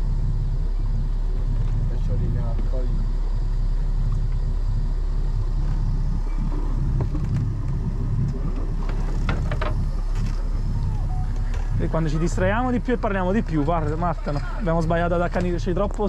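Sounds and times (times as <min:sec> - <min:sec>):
motorboat engine rumbling: 0:00.0 - 0:16.0.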